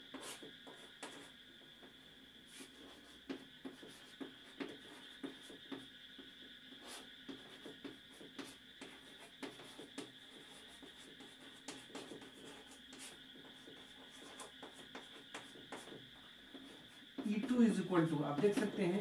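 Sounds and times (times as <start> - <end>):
chalk tapping on chalkboard: 0.0 - 1.9, 2.6 - 19.0.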